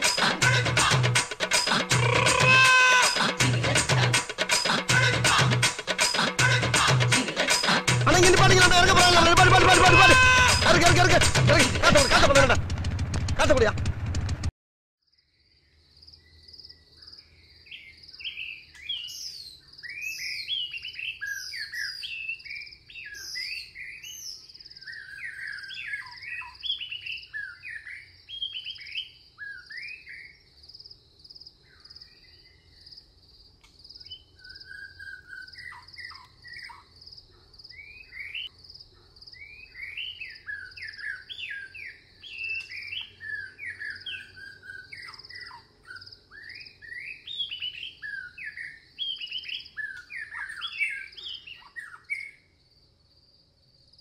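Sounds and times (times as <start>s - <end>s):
birds singing and calling: 1.6s - 3.4s, 16.2s - 30.6s, 33.9s - 52.5s
insect buzz: 1.6s - 3.4s.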